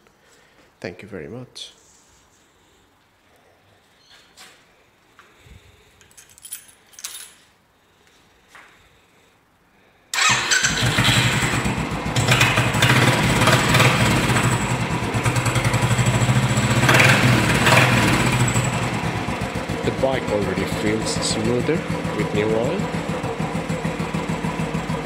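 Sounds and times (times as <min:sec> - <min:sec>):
motorcycle engine starting and idling: 0:10.1 - 0:25.0.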